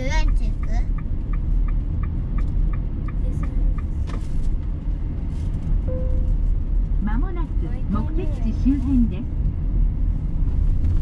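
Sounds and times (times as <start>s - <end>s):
turn signal ticking: 0.0s - 4.0s
car road and engine noise: 0.0s - 11.0s.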